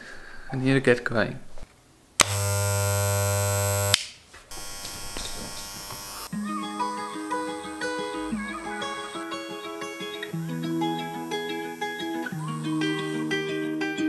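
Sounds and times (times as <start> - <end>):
electric hair clipper buzzing: 2.2 - 14.0
acoustic guitar music: 6.3 - 14.0.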